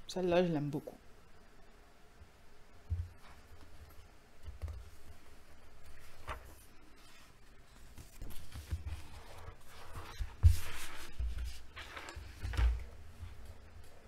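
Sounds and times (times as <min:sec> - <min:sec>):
paper pages rustling: 0:05.7 - 0:13.6.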